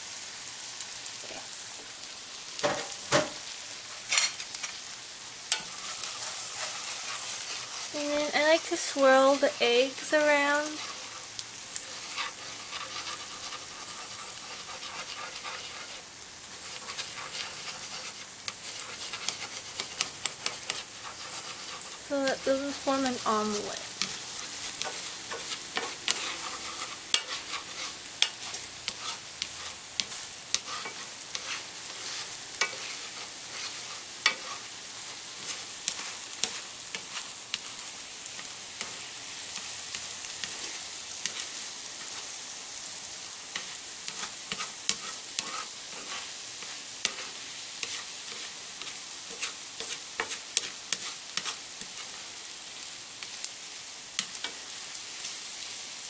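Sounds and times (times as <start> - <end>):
food sizzling in frying pan: 0.0 - 56.0.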